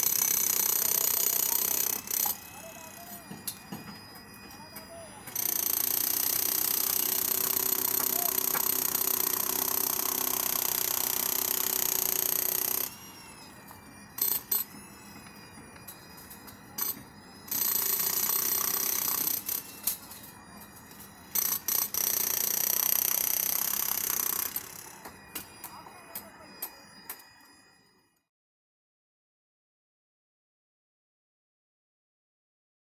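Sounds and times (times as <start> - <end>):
demolition hammer chiselling concrete: 0.0 - 13.0, 16.7 - 19.7.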